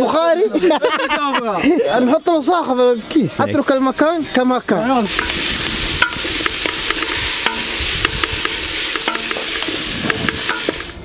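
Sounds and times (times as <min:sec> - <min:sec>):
onions sizzling in a pot: 0:05.0 - 0:11.0
wooden spoon knocking on pot: 0:06.0 - 0:10.9.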